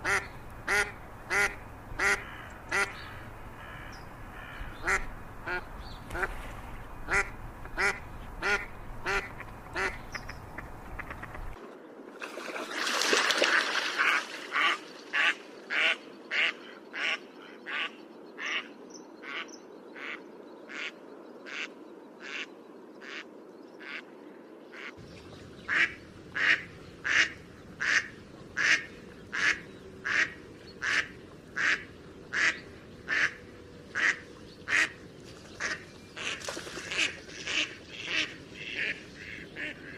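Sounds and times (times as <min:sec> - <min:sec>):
ducks quacking: 0:00.0 - 0:11.6, 0:13.5 - 0:24.0, 0:25.6 - 0:35.0, 0:35.6 - 0:39.9.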